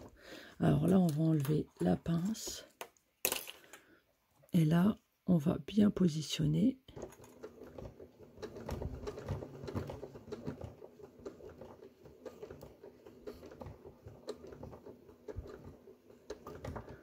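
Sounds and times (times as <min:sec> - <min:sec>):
sewing machine stitching: 0:06.5 - 0:17.0.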